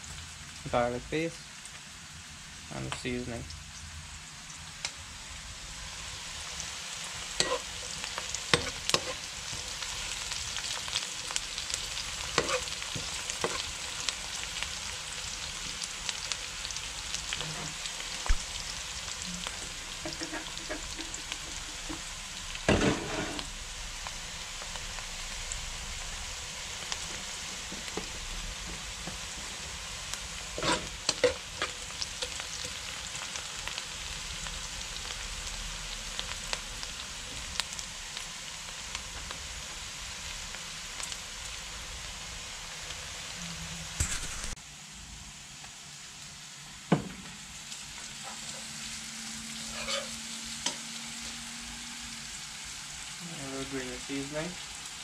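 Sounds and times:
onion sizzling in oil: 0:00.0 - 0:55.0
metal spoon scraping pan: 0:07.4 - 0:08.0, 0:08.6 - 0:09.3, 0:12.3 - 0:12.8, 0:20.0 - 0:22.0, 0:22.7 - 0:23.5, 0:30.6 - 0:32.7, 0:49.6 - 0:50.8.

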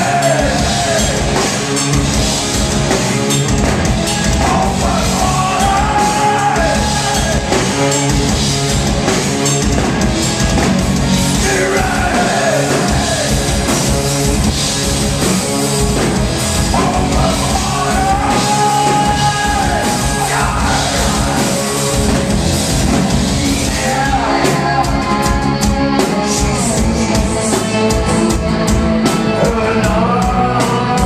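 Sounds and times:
drum kit: 0:00.0 - 0:31.0
electric guitars: 0:00.0 - 0:31.0
person singing long sliding notes: 0:04.4 - 0:07.6, 0:16.7 - 0:22.1.

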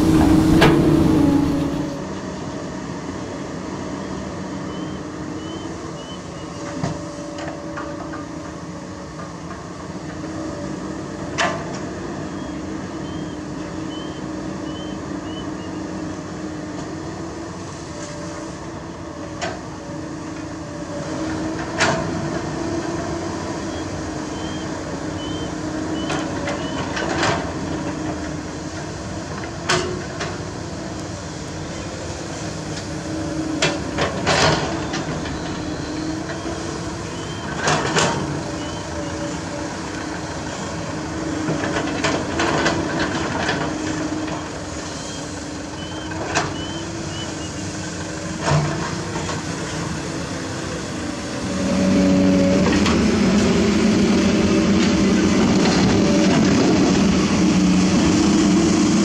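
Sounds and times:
dump truck engine running: 0:00.0 - 0:02.1, 0:30.4 - 0:59.0
excavator engine running: 0:00.0 - 0:02.1, 0:21.5 - 0:59.0.

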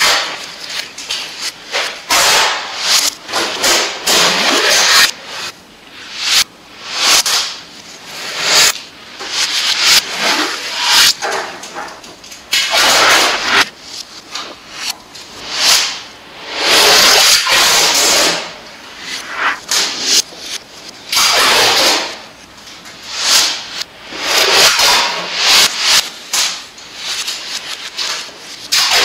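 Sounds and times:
tape ripping off roll: 0:00.0 - 0:05.2, 0:23.1 - 0:29.0.

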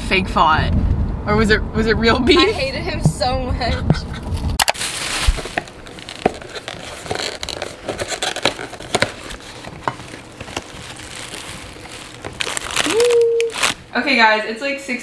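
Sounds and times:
paper bag crinkling: 0:04.6 - 0:13.9.

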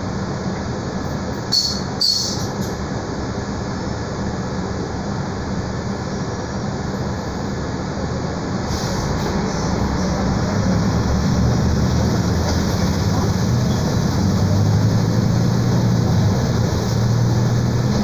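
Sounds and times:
bus diesel engine idling: 0:00.0 - 0:18.0.

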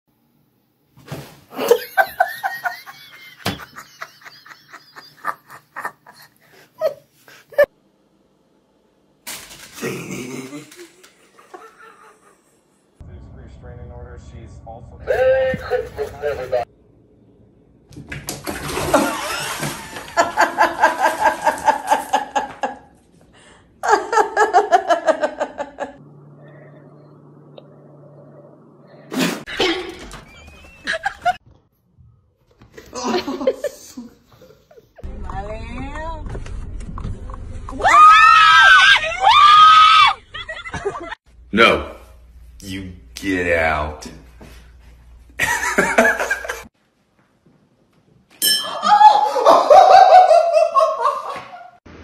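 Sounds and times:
person laughing: 0:01.5 - 0:07.7, 0:09.8 - 0:12.6, 0:15.0 - 0:16.7, 0:23.8 - 0:26.0, 0:30.8 - 0:31.4, 0:32.8 - 0:35.0, 0:40.2 - 0:41.2, 0:45.4 - 0:46.7, 0:48.7 - 0:51.8
water splash: 0:18.3 - 0:21.6.

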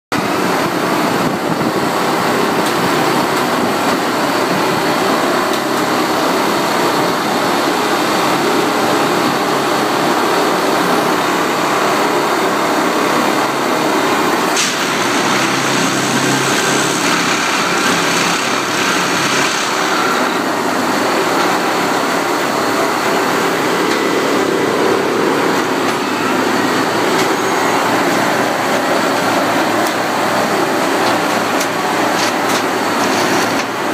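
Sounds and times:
track tamping machine din: 0:13.0 - 0:33.9.

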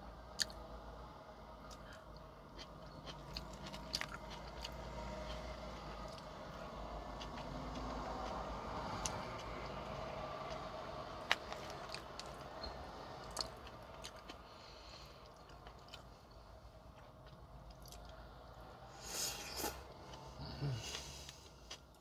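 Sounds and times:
chewing and mouth sounds: 0:00.3 - 0:00.6, 0:01.6 - 0:18.2.

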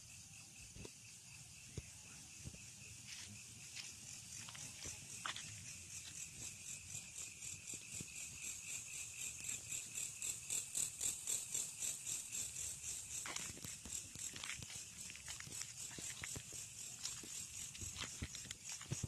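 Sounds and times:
night insects chirping: 0:00.0 - 0:19.0
footsteps on paving: 0:03.0 - 0:06.2, 0:13.2 - 0:19.0.

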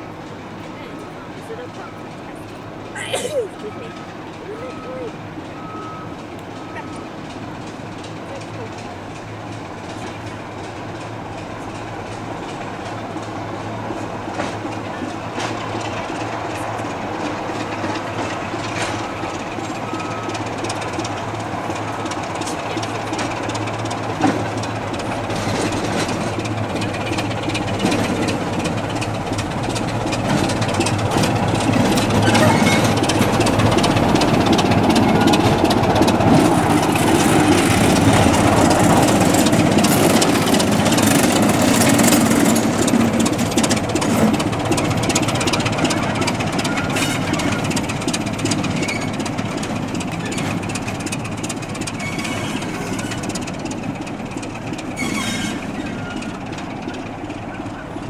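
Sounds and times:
diesel locomotive passing: 0:00.0 - 0:58.0.

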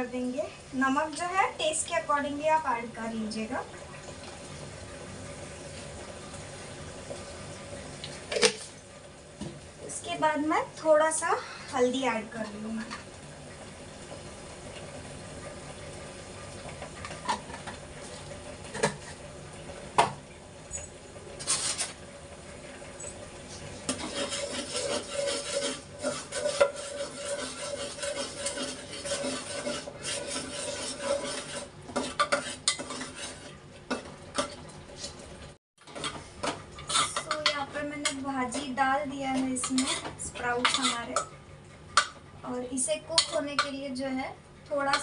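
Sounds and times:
spoon stirring and scraping pot: 0:21.4 - 0:22.0, 0:23.0 - 0:35.2, 0:35.8 - 0:41.4, 0:43.0 - 0:43.8.

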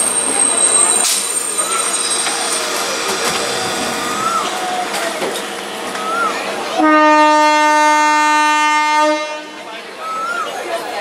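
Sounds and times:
train rumbling past: 0:00.0 - 0:10.1
train horn: 0:06.7 - 0:09.7.

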